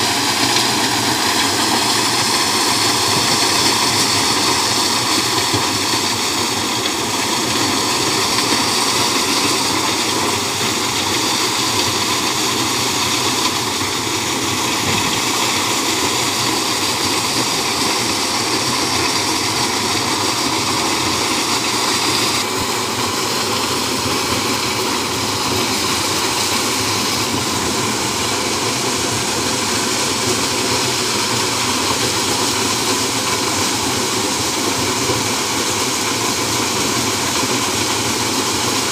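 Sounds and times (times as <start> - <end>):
maize sheller machine rushing: 0.0 - 38.9.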